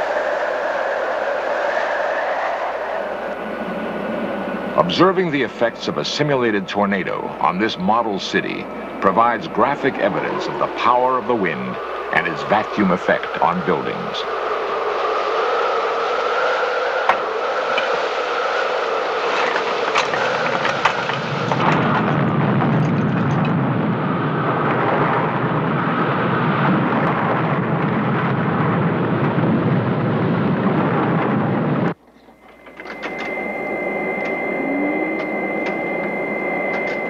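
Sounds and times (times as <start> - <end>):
steady high tone: 0.0 - 21.5, 31.9 - 37.0
tornado wind howling: 0.0 - 37.0.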